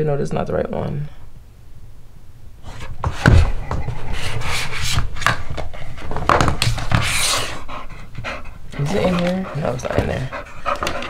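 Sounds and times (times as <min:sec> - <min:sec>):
rubbing on hard surface: 0:02.6 - 0:11.0
thump: 0:03.0 - 0:03.8.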